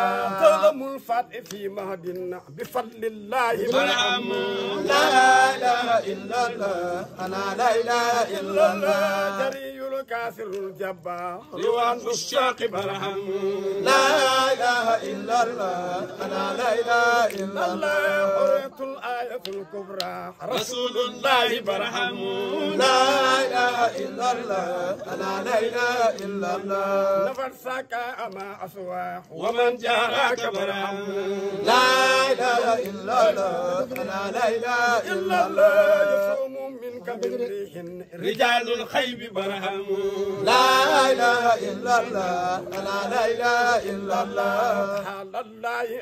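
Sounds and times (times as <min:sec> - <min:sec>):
man chanting: 0:00.0 - 0:14.6, 0:17.7 - 0:23.6
men chanting without instruments: 0:00.0 - 0:46.0.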